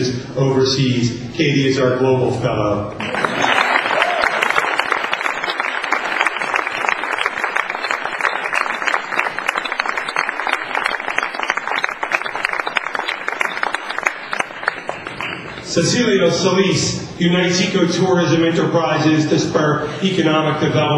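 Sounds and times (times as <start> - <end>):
audience applauding: 3.0 - 15.7.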